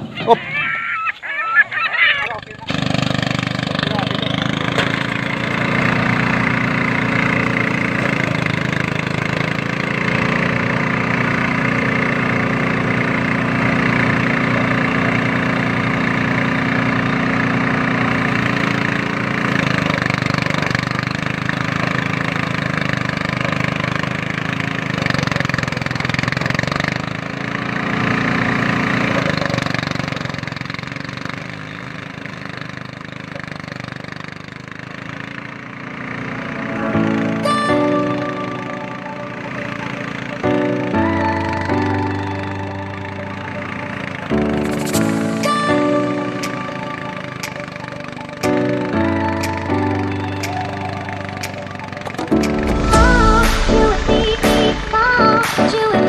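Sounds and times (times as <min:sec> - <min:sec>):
thresher engine running: 0:00.0 - 0:56.0
stalks rushing through drum: 0:52.2 - 0:56.0.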